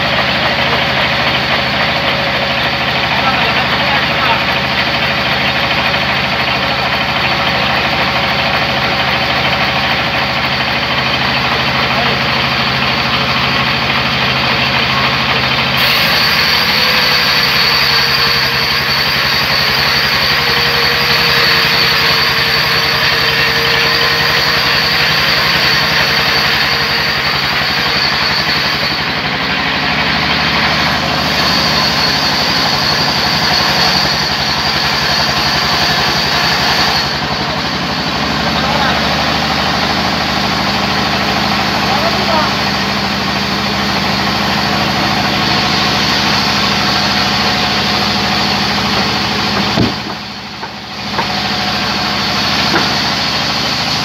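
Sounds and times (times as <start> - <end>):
band saw cutting log: 0.0 - 54.0
high steady whine: 0.0 - 54.0
motor hum: 40.0 - 54.0.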